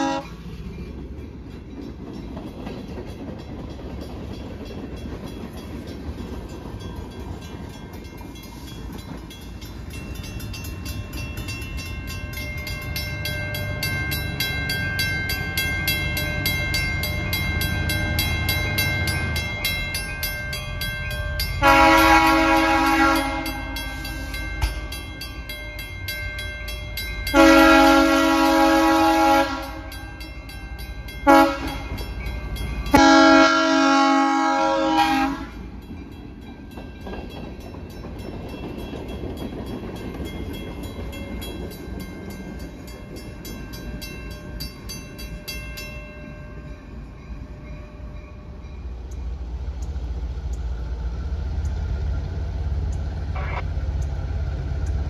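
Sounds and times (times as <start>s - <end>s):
locomotive horn blasts: 0.0s - 0.4s, 21.6s - 24.3s, 27.3s - 30.0s, 31.2s - 32.0s, 32.9s - 35.6s, 53.4s - 53.6s
diesel locomotive engine rumble: 0.0s - 55.0s.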